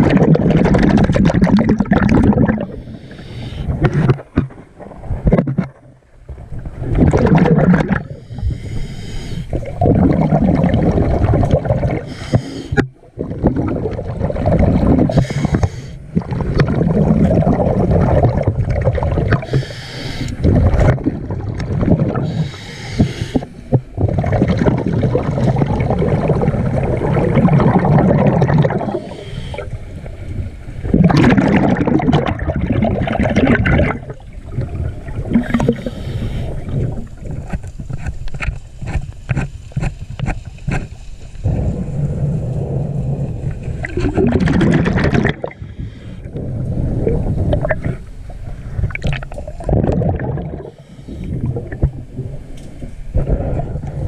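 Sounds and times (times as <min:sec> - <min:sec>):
exhaled bubbles rushing: 0:00.0 - 0:08.2, 0:09.5 - 0:12.1, 0:12.8 - 0:22.5, 0:23.7 - 0:29.7, 0:30.8 - 0:37.6, 0:41.4 - 0:54.0
regulator inhale hiss: 0:02.7 - 0:03.8, 0:08.0 - 0:09.6, 0:12.0 - 0:12.8, 0:15.1 - 0:16.1, 0:19.4 - 0:20.4, 0:22.2 - 0:23.7, 0:28.9 - 0:30.1, 0:35.5 - 0:36.8, 0:45.5 - 0:46.3, 0:50.6 - 0:51.5.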